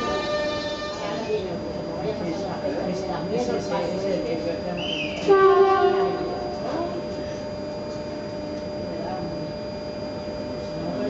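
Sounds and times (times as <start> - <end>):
loud pitched tone: 0.0 - 1.5, 4.8 - 7.4
faint voices: 0.0 - 8.2
thin high whine: 0.0 - 11.0
train electrical hum: 0.0 - 11.0.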